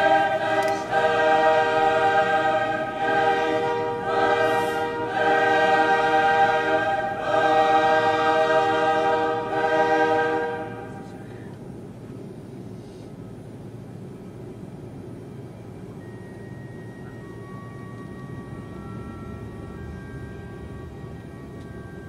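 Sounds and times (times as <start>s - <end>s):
choir-like sustained vocal chords: 0.0s - 11.4s.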